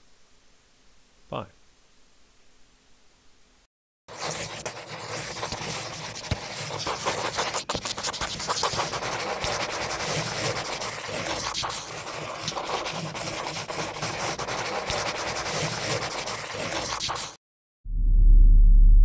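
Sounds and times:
pen scribbling on paper: 4.1s - 17.4s.

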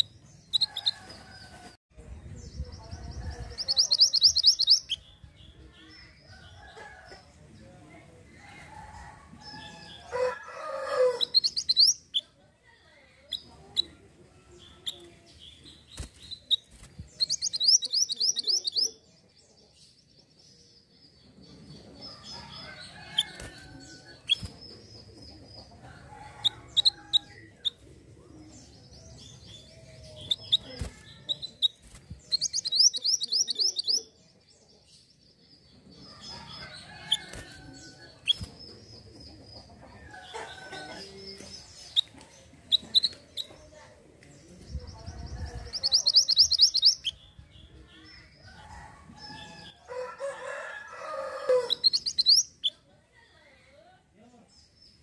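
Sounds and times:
songbird trilling and chirping: 0.0s - 1.6s, 2.2s - 7.4s, 8.3s - 53.4s
rooster crowing: 10.1s - 11.3s, 48.8s - 51.8s.

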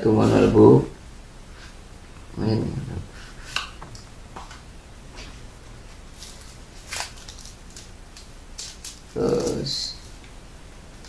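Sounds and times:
paper rustling: 5.2s - 10.3s.

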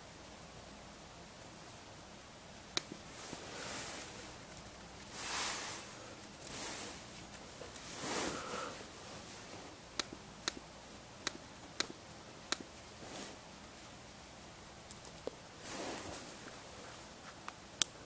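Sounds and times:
soft rustling: 2.9s - 9.8s, 12.7s - 14.0s, 15.0s - 17.5s.

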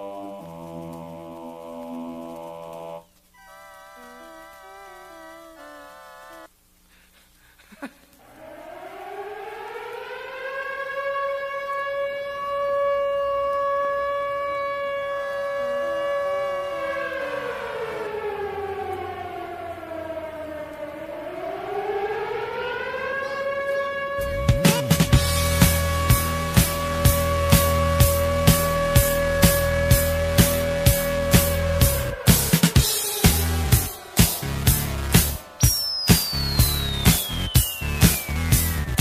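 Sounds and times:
air-raid siren wailing: 0.0s - 6.5s, 8.2s - 39.0s
drum beat: 24.4s - 39.0s.

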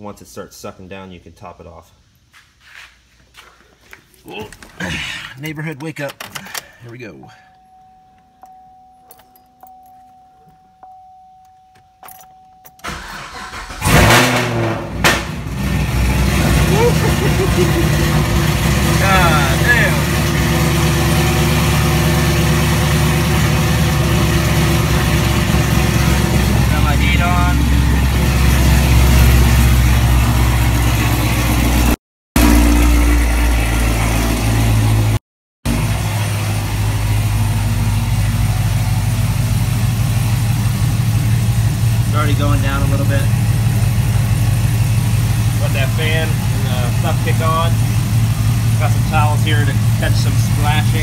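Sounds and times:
car engine revving: 12.1s - 51.0s.

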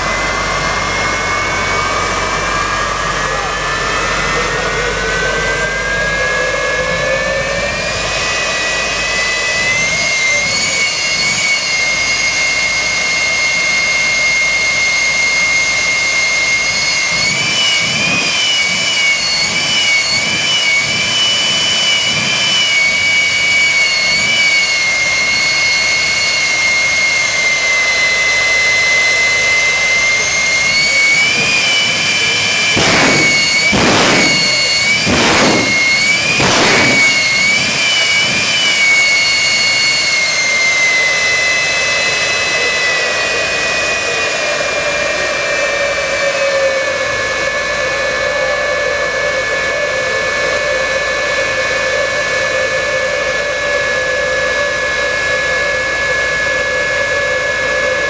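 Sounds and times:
jet engine whining: 0.0s - 58.0s
short rushing surges: 31.0s - 39.1s.

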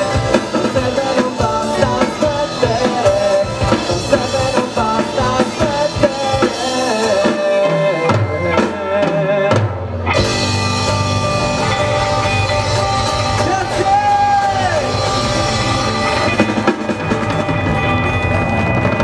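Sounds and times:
drums and cymbals: 0.0s - 19.0s
live rock band playing: 0.0s - 19.0s.

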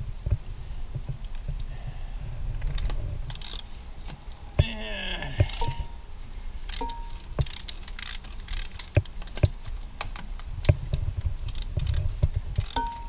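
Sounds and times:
socket ratchet clicking: 3.3s - 3.7s, 6.7s - 9.5s, 12.6s - 13.0s.

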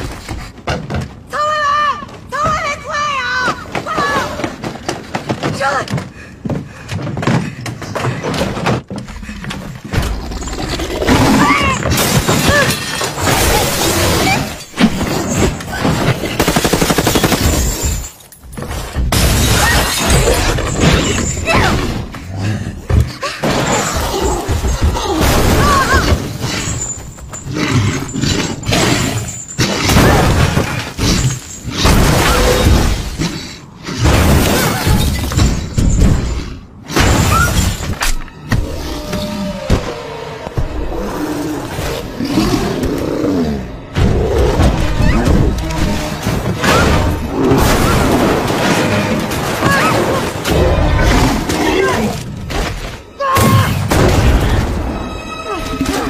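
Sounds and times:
film music score: 37.7s - 56.0s.

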